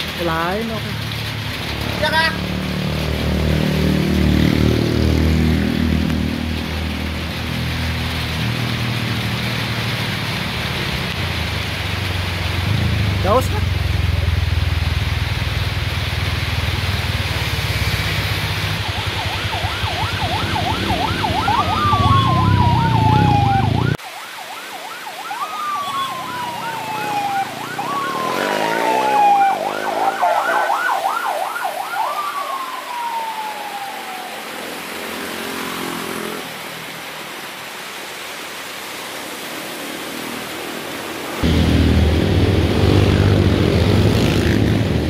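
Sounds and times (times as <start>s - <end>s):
low rumble of engines: 0.0s - 24.0s, 41.4s - 45.0s
electronic siren yelp and wail: 18.6s - 35.7s.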